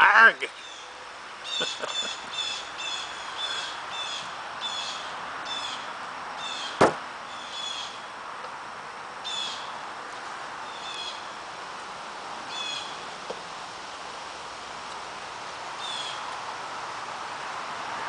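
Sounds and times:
steady outdoor hiss: 0.0s - 18.0s
bird chirping: 0.5s - 8.1s.

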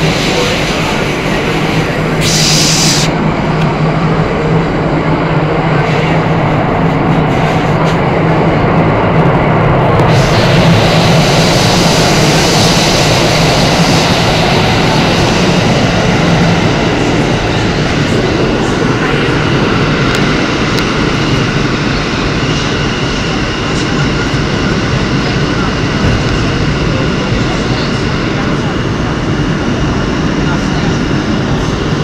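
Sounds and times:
high hiss: 0.0s - 3.2s
low hum: 0.0s - 30.5s
subway train rumbling in tunnel: 0.0s - 32.0s.

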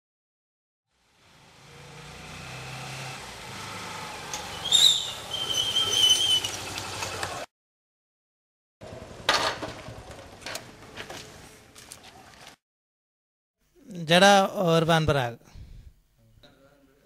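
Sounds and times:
motorcycle engine passing: 1.0s - 7.5s
high squeal: 4.4s - 6.7s.

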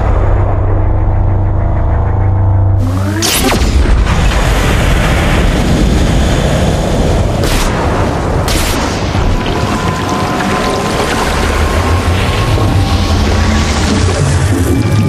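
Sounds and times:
sharp hits: 0.0s - 5.8s
heavy boom: 0.0s - 9.6s
loud rumble: 0.0s - 15.0s
churning water: 8.2s - 15.0s.

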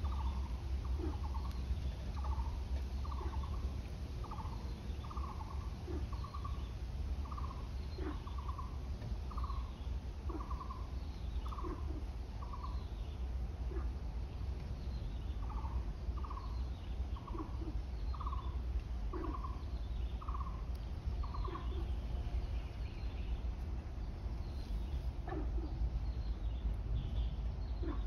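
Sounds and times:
animal trilled calls: 0.0s - 6.6s, 7.2s - 9.7s, 10.3s - 12.8s, 17.2s - 20.6s, 21.2s - 22.0s, 27.8s - 28.0s
steady low rumble: 0.0s - 28.0s.

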